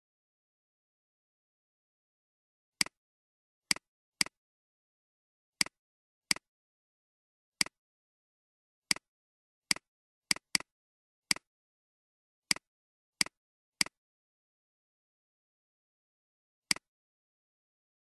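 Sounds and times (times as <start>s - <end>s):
computer mouse clicks: 5.6s - 6.5s, 9.7s - 10.7s, 12.5s - 14.0s.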